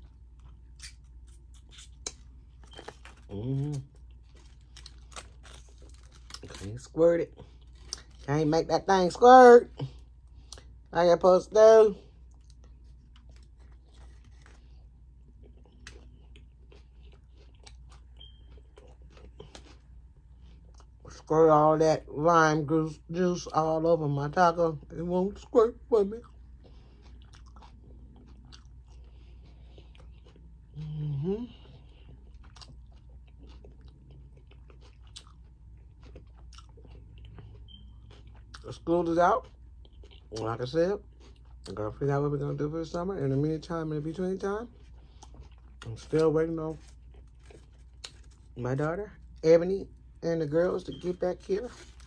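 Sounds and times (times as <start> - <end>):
faint chewing: 12.0 - 21.2, 26.2 - 38.8, 39.4 - 41.8, 44.6 - 48.6.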